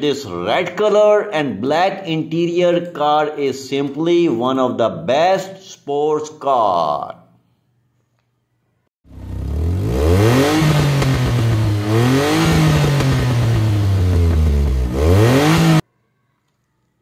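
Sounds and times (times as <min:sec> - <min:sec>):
car engine revving: 0:09.1 - 0:15.8.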